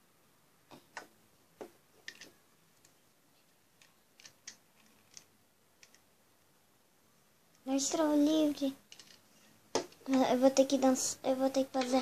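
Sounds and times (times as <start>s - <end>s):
plastic toys tapping and clicking: 0.7s - 3.0s, 8.9s - 10.4s.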